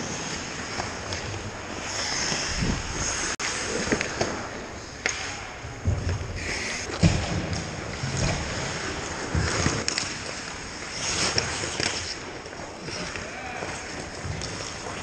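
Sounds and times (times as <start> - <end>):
skates scraping on ice: 0.0 - 15.0
stick and puck clacks: 3.5 - 15.0.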